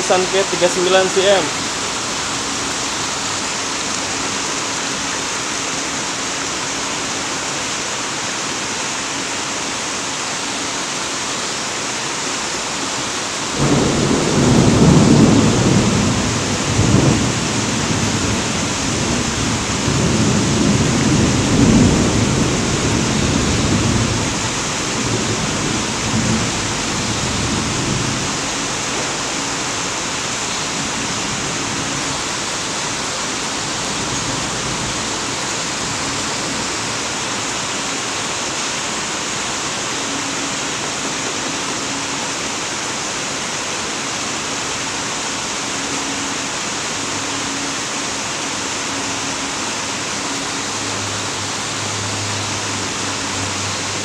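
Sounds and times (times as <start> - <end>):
steady rushing noise: 0.0 - 3.4.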